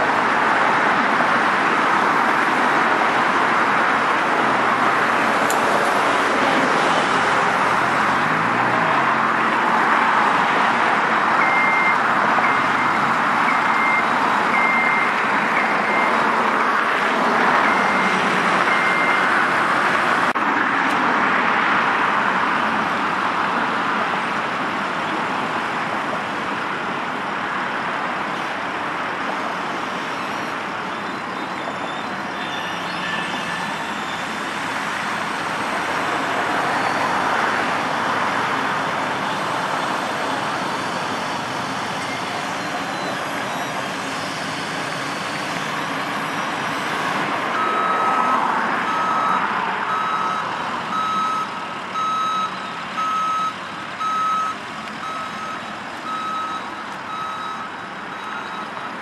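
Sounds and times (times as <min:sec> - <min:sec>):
reversing alarm beeping: 0:11.4 - 0:16.8, 0:17.6 - 0:19.3, 0:39.2 - 0:46.5, 0:47.5 - 0:59.0.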